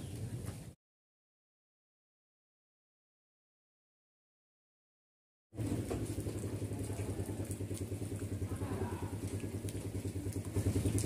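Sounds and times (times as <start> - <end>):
rain pattering on pond: 5.6 - 11.0
small engine idling: 5.6 - 11.0.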